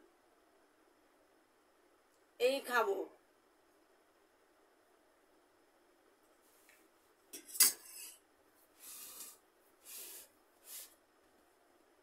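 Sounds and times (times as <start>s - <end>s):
metal spoon clinking on steel: 7.4s - 8.2s
rice scraped on steel plate: 8.8s - 10.9s.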